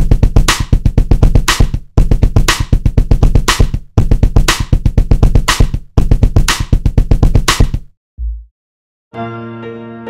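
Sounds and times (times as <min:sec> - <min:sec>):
looped drum beat: 0:00.0 - 0:07.9.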